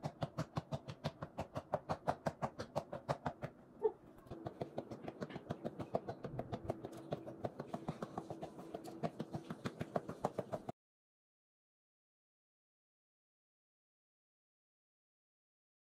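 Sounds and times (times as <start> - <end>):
fists tapping boxing reflex ball: 0.0 - 3.6, 4.3 - 10.7.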